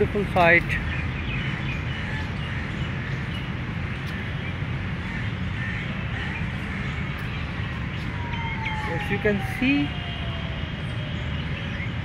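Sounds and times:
distant city traffic rumble: 0:00.0 - 0:12.0
crows cawing: 0:01.5 - 0:03.2, 0:05.0 - 0:07.1
distant siren wailing: 0:06.2 - 0:12.0.

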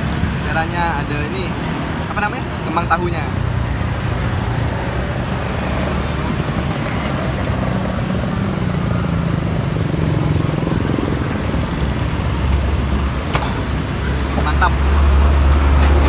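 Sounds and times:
street traffic noise: 0:00.0 - 0:16.0
motorcycle engine running: 0:03.4 - 0:15.6.

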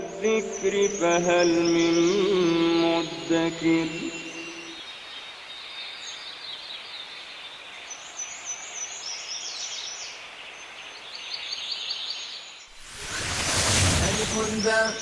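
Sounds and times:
small birds chirping: 0:00.0 - 0:15.0
loud rushing noise: 0:12.8 - 0:14.8.

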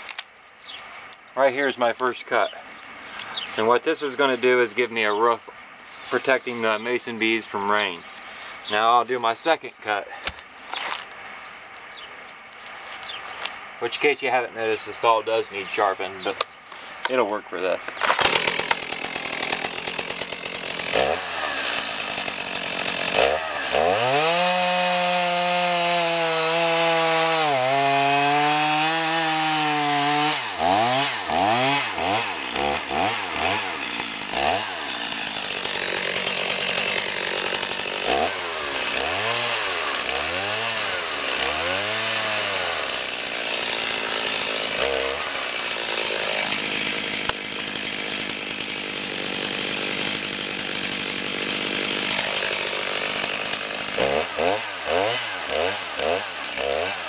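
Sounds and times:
chainsaw cutting log: 0:10.1 - 0:11.3, 0:17.8 - 0:57.0.

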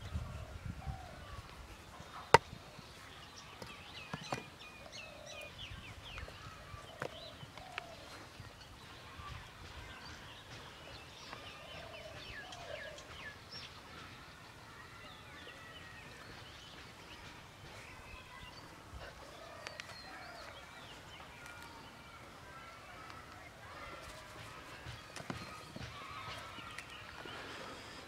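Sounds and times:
birds chirping: 0:00.0 - 0:28.0
faint knocks of dry mud: 0:02.1 - 0:04.6, 0:23.0 - 0:27.1.

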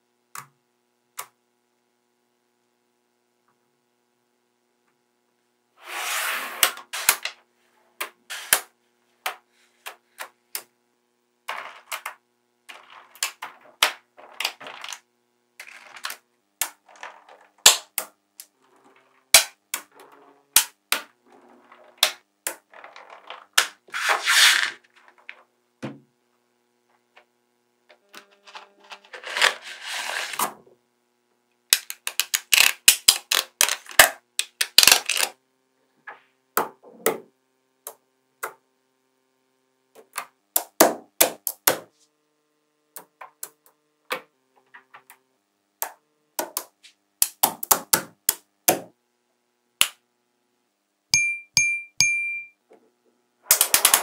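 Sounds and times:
magnetic balls clicking together: 0:11.5 - 0:15.0, 0:31.7 - 0:35.4, 0:45.8 - 0:48.9, 0:53.5 - 0:54.0
balls clattering together: 0:11.5 - 0:26.0, 0:53.5 - 0:54.0.

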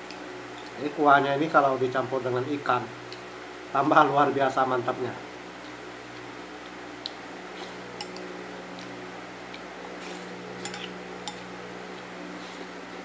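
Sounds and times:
steady low hum: 0:00.0 - 0:13.0
utensil clinking against bowl: 0:10.6 - 0:11.4.

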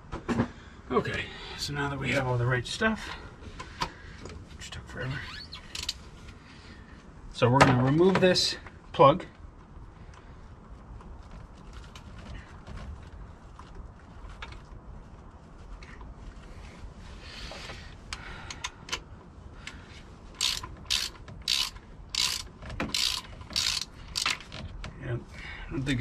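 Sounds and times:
tool clicks and clinks: 0:20.4 - 0:24.5
socket ratchet ratcheting: 0:20.4 - 0:24.7.

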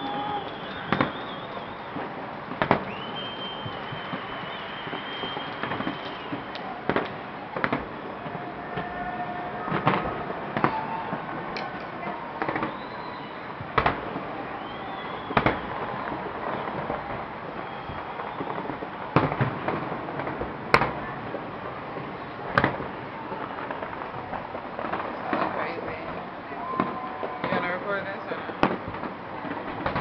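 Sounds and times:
firework whistles: 0:00.0 - 0:19.7
firework bangs: 0:00.0 - 0:30.0
fireworks crackling: 0:00.0 - 0:30.0.

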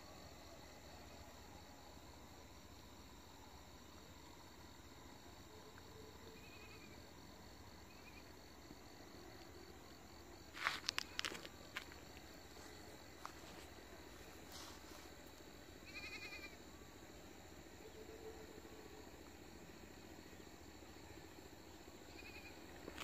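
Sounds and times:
distant goat bleating: 0:15.8 - 0:16.6.

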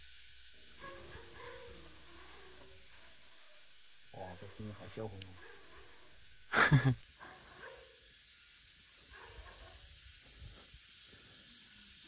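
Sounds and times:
fishing reel drag hissing: 0:07.0 - 0:12.0.

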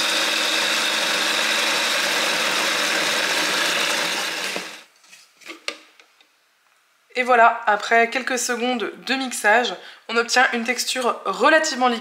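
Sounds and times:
food processor motor running: 0:00.0 - 0:04.9.

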